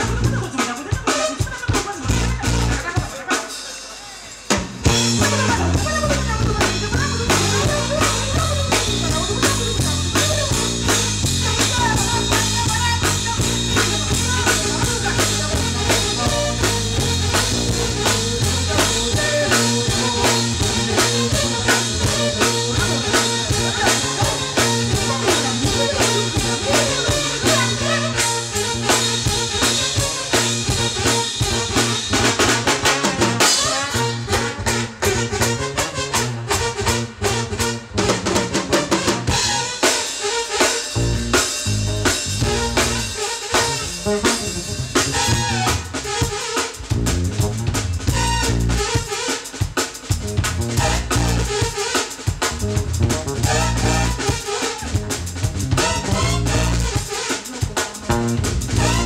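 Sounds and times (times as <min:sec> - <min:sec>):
bass line: 0:00.0 - 0:00.7, 0:01.5 - 0:03.1, 0:04.7 - 0:49.1, 0:50.1 - 0:59.0
drum kit beating: 0:00.0 - 0:59.0
jazz band playing: 0:00.0 - 0:59.0.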